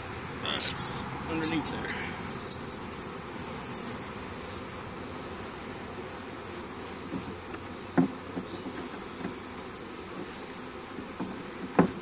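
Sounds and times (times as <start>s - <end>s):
bee swarm buzzing: 0.0s - 12.0s
knocks on hive box: 7.1s - 9.4s, 11.1s - 12.0s.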